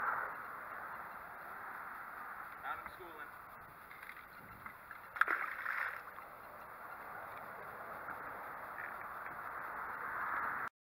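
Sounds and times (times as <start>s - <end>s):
faint ticks: 0.0s - 10.6s
water lapping against boat hull: 3.9s - 6.3s.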